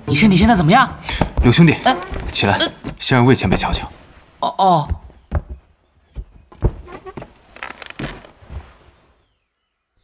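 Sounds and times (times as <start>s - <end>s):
footsteps and thuds: 1.1s - 3.9s, 4.8s - 8.9s.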